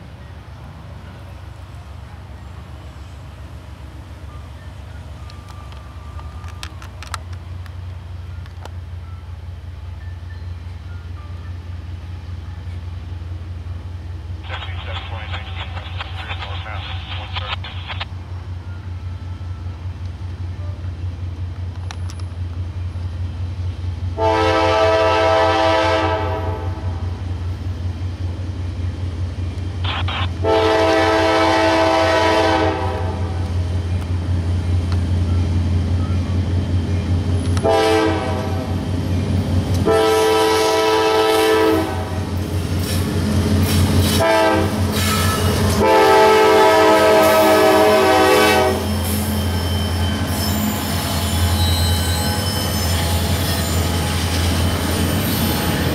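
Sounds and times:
diesel engine drone: 11.8s - 24.3s, 26.5s - 30.6s
locomotive air horn blasts: 24.2s - 27.0s, 30.4s - 33.4s, 37.6s - 38.8s, 39.8s - 42.3s, 44.0s - 49.0s.

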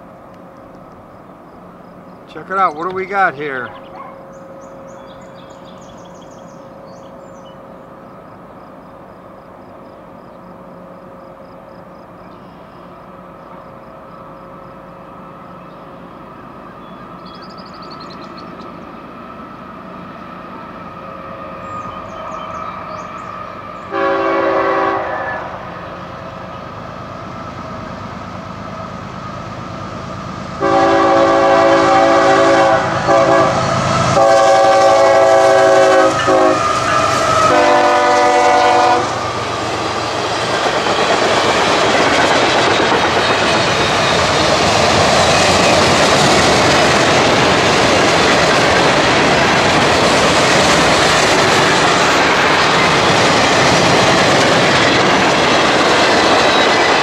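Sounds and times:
train air horn blasts: 23.9s - 25.7s, 30.6s - 39.3s.

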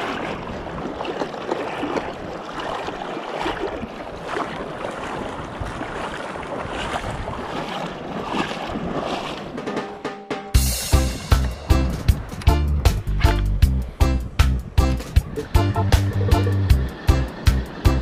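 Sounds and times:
small waves sloshing in shallow water: 0.0s - 9.9s, 16.7s - 18.0s.

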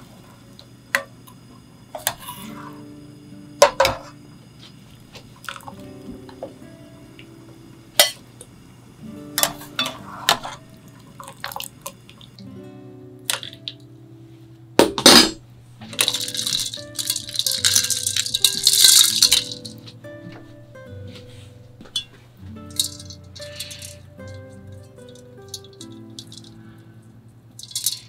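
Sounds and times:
soft background music: 1.7s - 28.0s
ice cubes clinking in a bowl: 15.9s - 19.8s, 22.7s - 24.4s, 25.1s - 26.6s, 27.6s - 28.0s.

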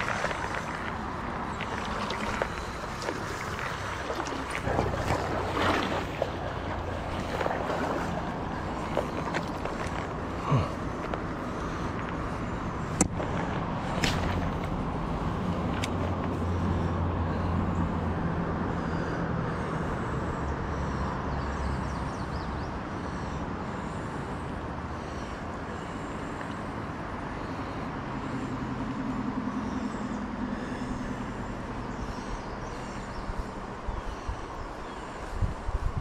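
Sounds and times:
rushing water: 0.0s - 18.2s.

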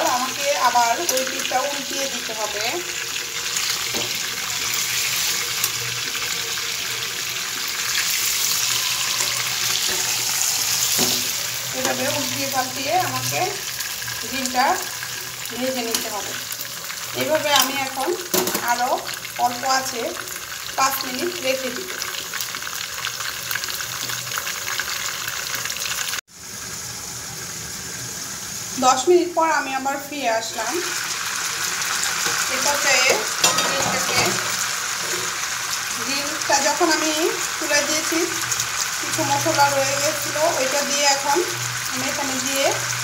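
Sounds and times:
chicken sizzling in hot oil: 0.0s - 43.0s
hiss from lidded pan: 2.7s - 13.5s.

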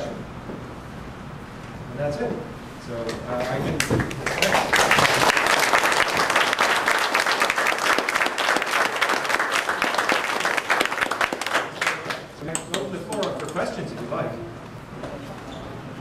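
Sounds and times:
audience applauding: 4.0s - 13.4s.

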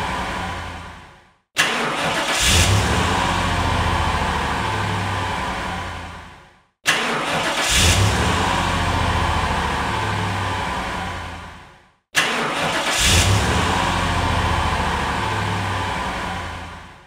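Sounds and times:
car engine cranking and starting: 0.0s - 17.0s
car engine idling: 12.9s - 17.0s.

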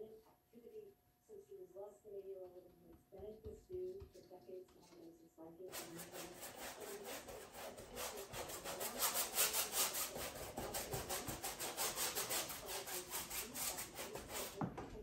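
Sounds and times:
paintbrush scrubbing canvas: 5.7s - 14.7s.

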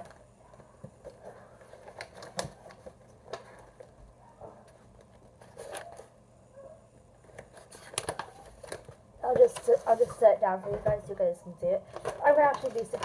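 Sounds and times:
paper rustling: 0.0s - 6.1s, 7.2s - 11.1s, 11.8s - 13.0s.

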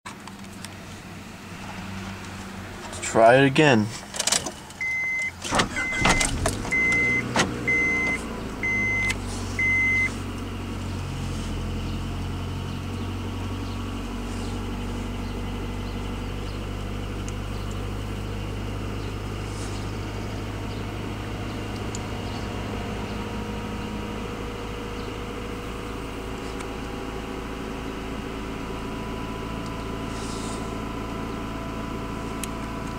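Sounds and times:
car engine cranking and idling: 0.1s - 32.9s
door chime beeping: 4.8s - 10.1s.

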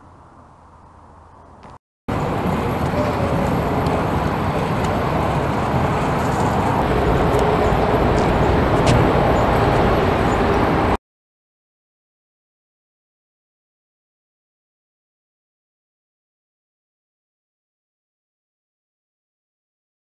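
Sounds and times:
loud rushing noise: 2.1s - 11.0s.

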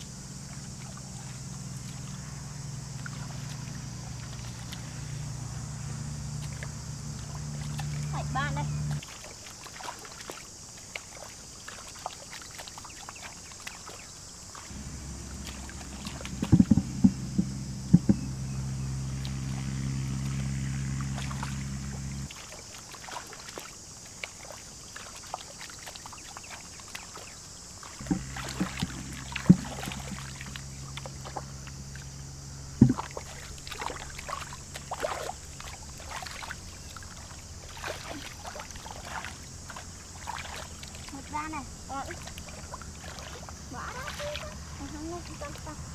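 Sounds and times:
low motor hum: 0.0s - 9.0s, 14.7s - 22.3s, 28.0s - 45.9s
high insect buzz: 0.0s - 45.9s
hands splashing in muddy water: 8.9s - 18.2s, 21.2s - 32.1s, 32.8s - 45.7s
sharp slaps and knocks: 14.7s - 18.3s, 32.8s - 33.1s.

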